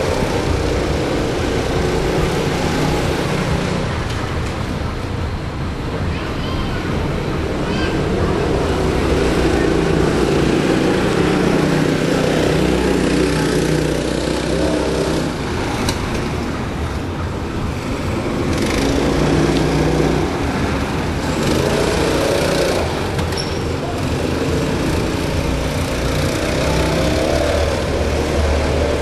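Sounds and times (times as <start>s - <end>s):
go-kart engines running: 0.0s - 29.0s.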